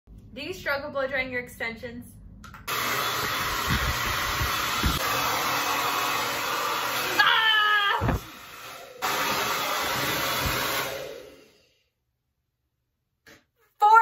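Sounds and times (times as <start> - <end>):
hair dryer blowing: 2.7 - 11.8.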